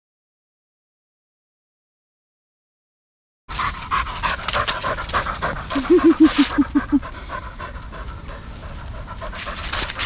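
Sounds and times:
dog panting: 3.5 - 10.0.

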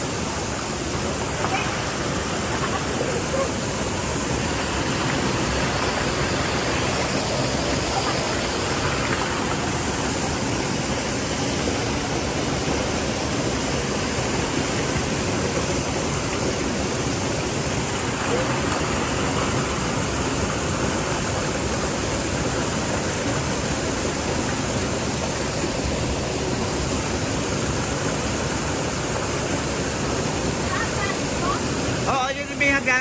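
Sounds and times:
waterfall rushing: 0.0 - 33.0.

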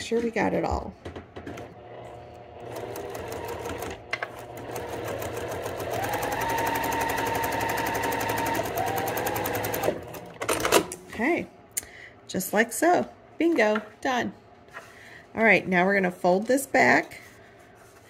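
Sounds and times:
sewing machine stitching: 1.4 - 10.9.

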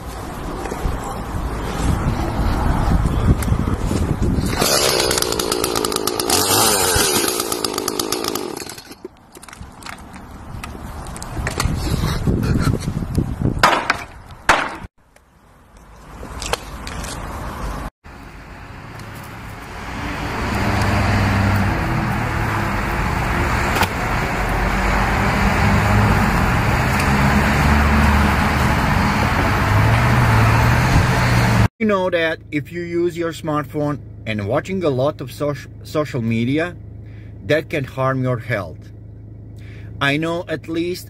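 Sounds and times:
sharp knocks: 13.6 - 14.9
car engine running: 38.8 - 40.0.

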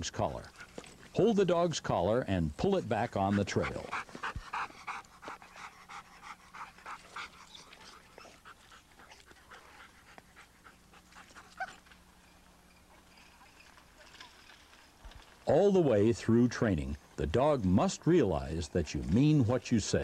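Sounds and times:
dog panting: 3.1 - 11.8.

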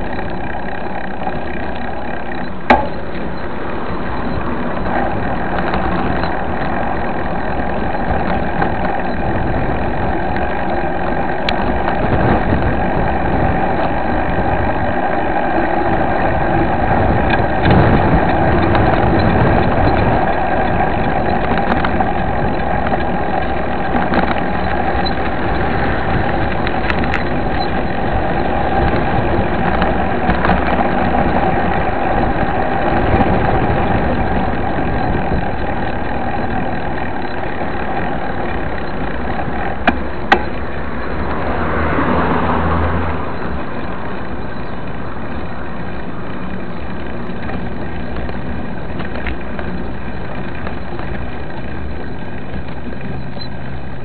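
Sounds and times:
bike tyres rumbling on asphalt: 0.0 - 54.0
sharp knocks: 2.6 - 3.4.

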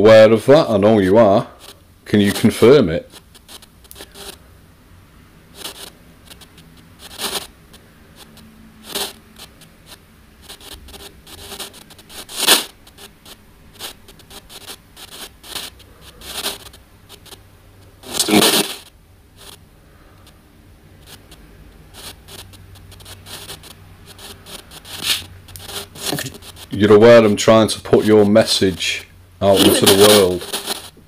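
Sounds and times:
bursts of filtered radio static: 0.4 - 31.0
voice-like radio fragment: 18.0 - 18.8, 26.0 - 27.4, 29.4 - 30.5.

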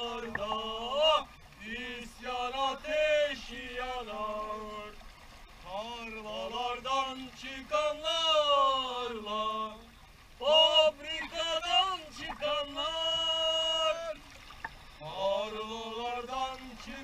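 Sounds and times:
man singing or chanting: 5.7 - 14.2, 15.0 - 17.0.

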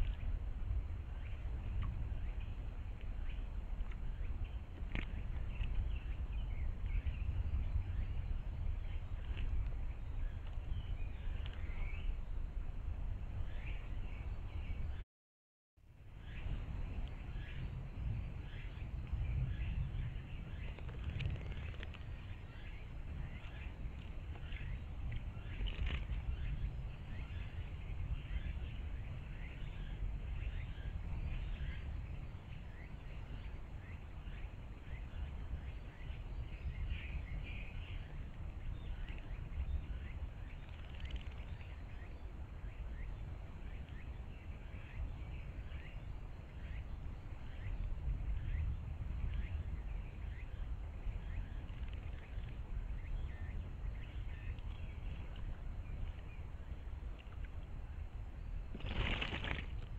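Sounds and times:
bird splashing in water: 58.7 - 59.9.

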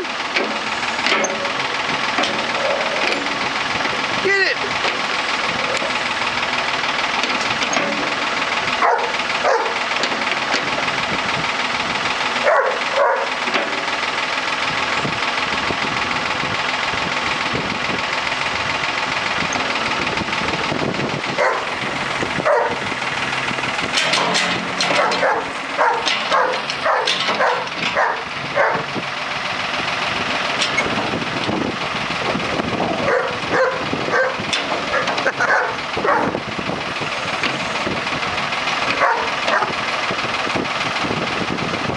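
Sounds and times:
backhoe engine running: 0.0 - 41.9
dog barking: 8.8 - 9.8, 12.4 - 13.3, 21.4 - 21.7, 22.4 - 22.8, 25.0 - 28.9, 33.0 - 36.3, 39.0 - 39.8.

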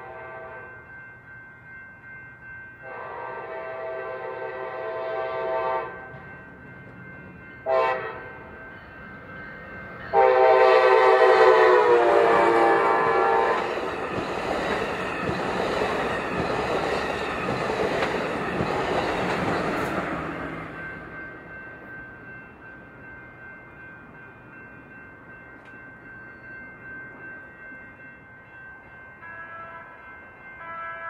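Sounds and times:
train horn blasts: 0.0 - 0.7, 2.8 - 6.2, 7.6 - 8.4, 10.1 - 13.8, 29.3 - 30.0, 30.6 - 31.0
train wheels rumbling on rails: 2.8 - 27.9.

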